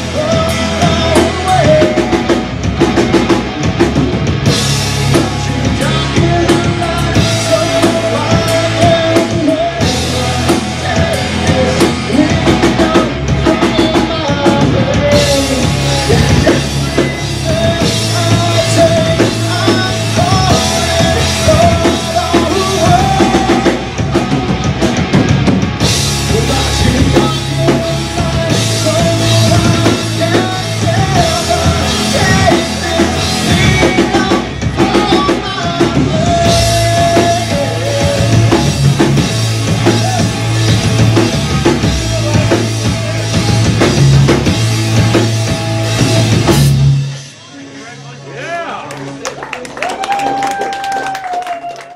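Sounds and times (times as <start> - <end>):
electric guitar: 0.0 - 47.4
drum kit: 0.0 - 47.5
bass guitar: 0.0 - 51.9.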